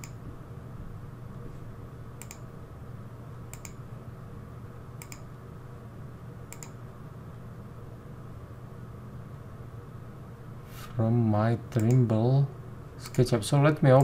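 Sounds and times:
computer mouse clicks: 0:00.0 - 0:00.2, 0:02.2 - 0:02.5, 0:03.5 - 0:03.8, 0:05.0 - 0:05.3, 0:06.5 - 0:06.8, 0:11.8 - 0:12.0, 0:13.0 - 0:13.3
steady low hum: 0:00.0 - 0:14.0.

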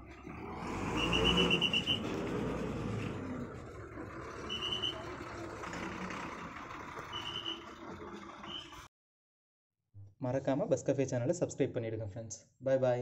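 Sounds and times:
bus diesel engine running: 0:00.0 - 0:08.9
reversing alarm beeping: 0:00.9 - 0:02.1, 0:04.4 - 0:05.2, 0:07.1 - 0:07.7.

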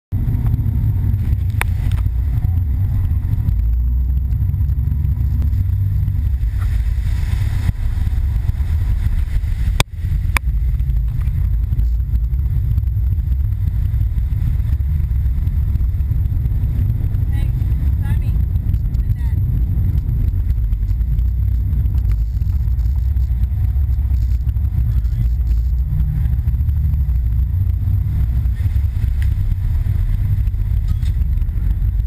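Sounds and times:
boat engines rumbling: 0:00.1 - 0:32.0
water rushing: 0:05.4 - 0:11.9.

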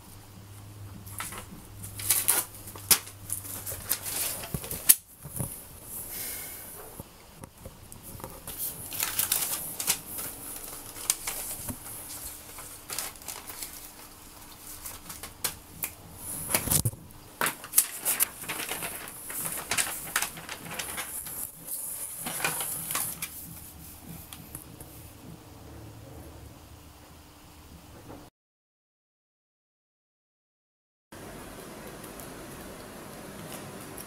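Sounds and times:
paper rustling and shuffling: 0:01.0 - 0:06.2, 0:06.8 - 0:25.1.

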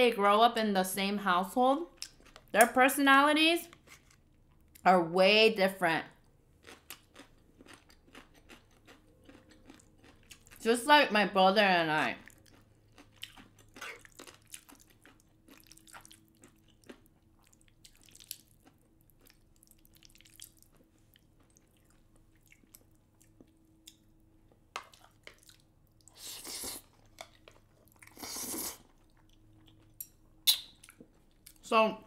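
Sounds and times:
chewing: 0:06.6 - 0:10.6, 0:12.2 - 0:31.6
slurping noodles: 0:26.2 - 0:26.9, 0:28.1 - 0:28.8.

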